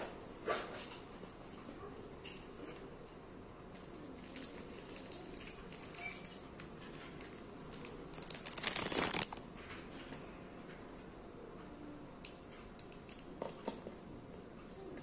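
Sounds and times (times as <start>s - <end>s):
pens clicking and rustling: 3.8s - 9.4s
plastic crinkling: 4.2s - 9.4s.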